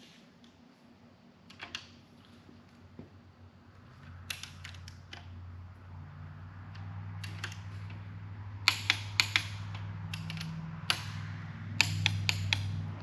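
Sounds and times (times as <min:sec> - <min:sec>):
steady low hum: 0:00.0 - 0:13.0
torque wrench clicks: 0:08.6 - 0:11.2, 0:11.8 - 0:12.8.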